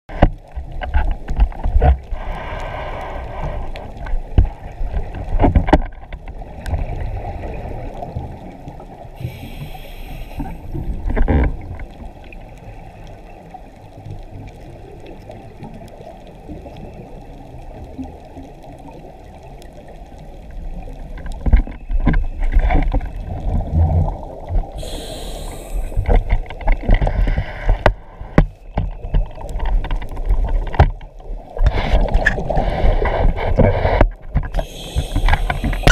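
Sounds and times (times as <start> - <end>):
muffled underwater bubbles rumble: 0.1 - 35.9
hissing regulator breaths: 9.2 - 10.9, 24.8 - 26.3, 34.5 - 35.9.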